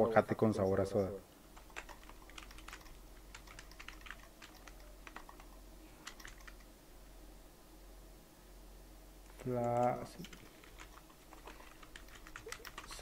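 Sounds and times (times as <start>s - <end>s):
typing on a keyboard: 1.6s - 6.7s, 9.3s - 13.0s.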